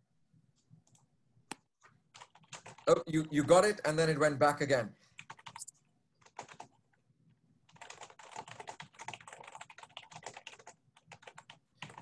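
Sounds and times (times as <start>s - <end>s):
computer keyboard typing: 2.1s - 3.6s, 5.2s - 6.9s, 7.6s - 12.0s.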